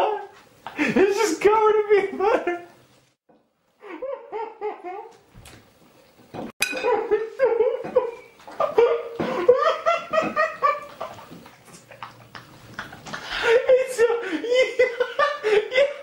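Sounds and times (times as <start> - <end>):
person laughing hard: 3.8 - 5.2, 6.8 - 16.0.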